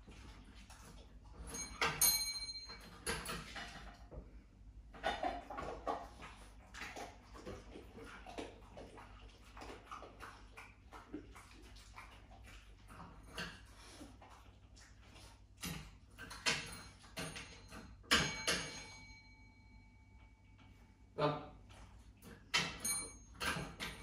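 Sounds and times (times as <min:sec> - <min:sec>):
desk bell ding: 0:01.6 - 0:02.8, 0:18.1 - 0:20.0, 0:22.7 - 0:23.3.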